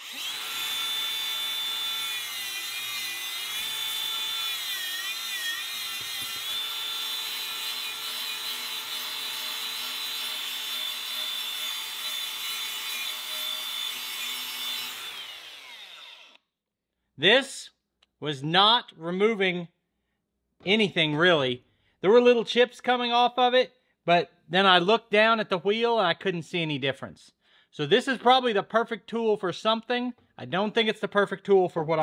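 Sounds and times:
angle grinder whining on metal: 0.0 - 16.4.

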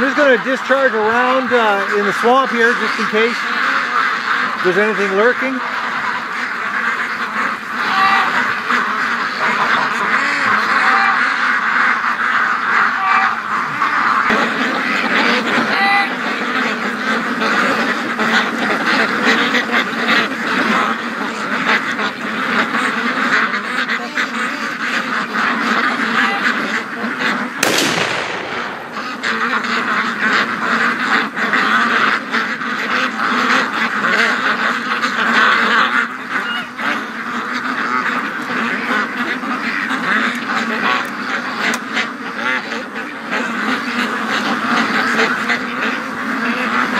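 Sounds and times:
ducks quacking: 0.0 - 46.9
distant gunshot: 27.6 - 30.5.

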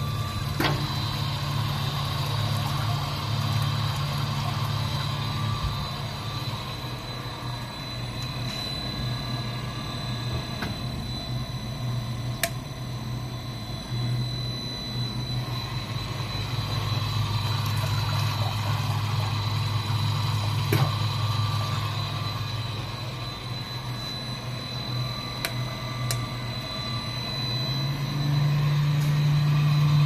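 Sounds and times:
motor low hum: 0.0 - 30.0
pump high whine: 0.0 - 30.0.

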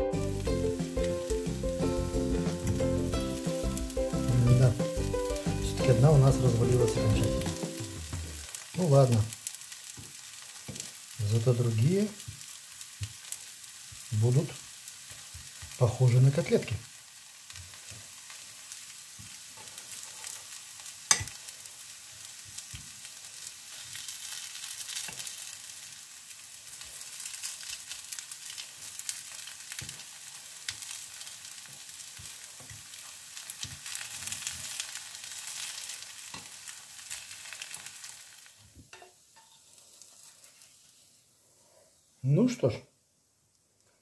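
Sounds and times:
patties sizzling in a frying pan: 0.2 - 44.0
spatula and fork knocking pan: 10.0 - 10.9, 21.1 - 21.4, 38.9 - 39.6.

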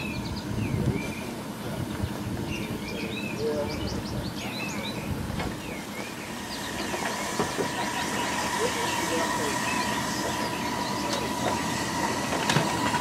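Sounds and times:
songbirds chirping: 0.0 - 13.0
steady high tone: 5.9 - 13.0.

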